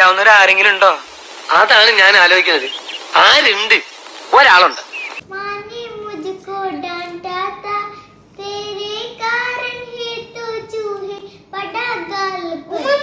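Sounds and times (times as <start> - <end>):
girl singing: 5.3 - 13.0.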